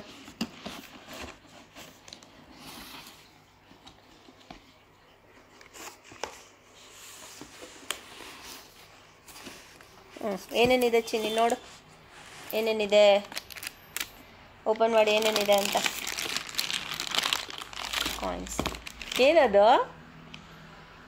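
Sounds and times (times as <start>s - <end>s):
plastic mailer bag rustling: 12.3s - 14.1s, 14.8s - 19.4s.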